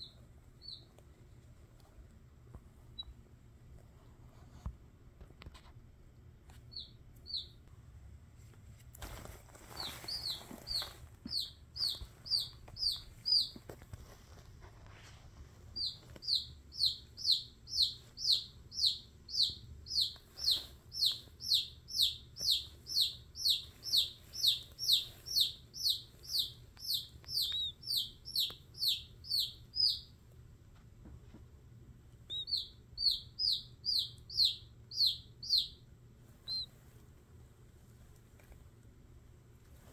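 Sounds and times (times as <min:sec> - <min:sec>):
chick peeping: 0:00.0 - 0:00.9, 0:06.7 - 0:07.6, 0:09.7 - 0:13.8, 0:15.8 - 0:30.2, 0:32.2 - 0:36.7.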